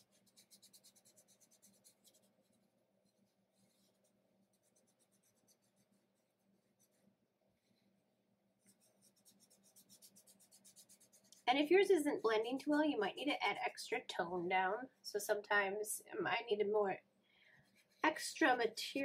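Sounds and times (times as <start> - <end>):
fingertip rubbing pastel on paper: 0.0 - 7.1, 8.6 - 11.5, 17.6 - 18.2.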